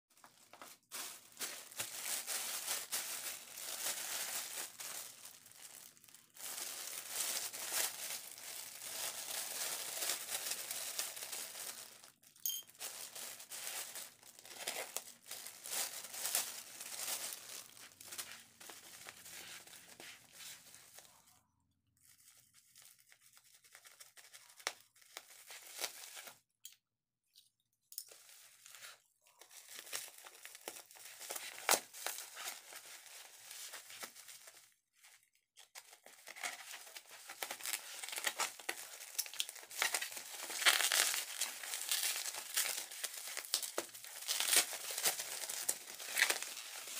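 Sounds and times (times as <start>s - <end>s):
plastic bag crinkling and tearing: 0.2s - 21.4s, 22.0s - 26.4s, 28.1s - 46.9s.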